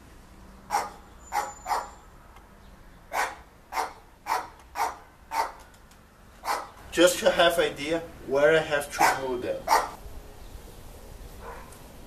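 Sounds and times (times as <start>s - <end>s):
dog barking: 0.7s - 2.0s, 3.1s - 5.6s, 6.4s - 6.7s, 9.0s - 10.0s, 11.4s - 11.8s.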